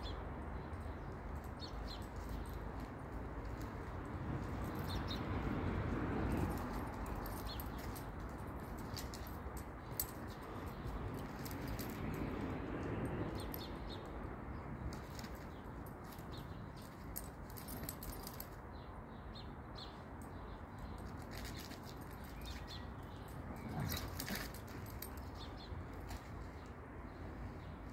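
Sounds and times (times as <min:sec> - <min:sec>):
dog collar tags jingling: 0:01.0 - 0:18.6, 0:19.9 - 0:26.5
dog claws on concrete: 0:20.8 - 0:26.5.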